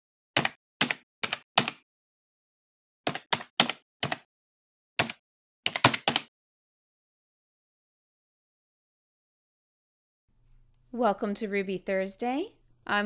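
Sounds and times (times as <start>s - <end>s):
typing on a keyboard: 0.4s - 1.8s, 3.1s - 4.3s, 5.0s - 6.3s.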